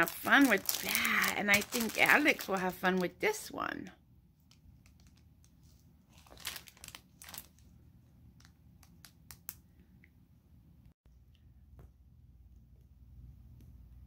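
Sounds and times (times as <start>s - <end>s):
plastic bag crinkling: 0.0s - 3.3s, 4.8s - 7.7s.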